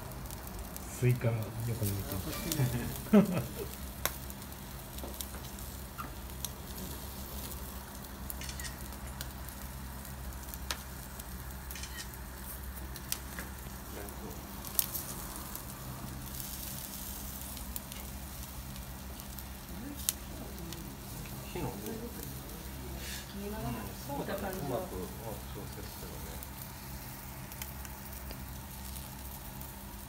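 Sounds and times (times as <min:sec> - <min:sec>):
low steady hum: 0:00.0 - 0:30.0
skewers sizzling over charcoal: 0:00.0 - 0:30.0.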